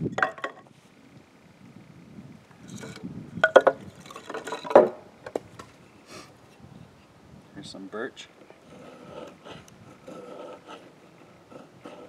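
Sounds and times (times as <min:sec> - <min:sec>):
firewood sticks knocking together: 0:03.4 - 0:05.7.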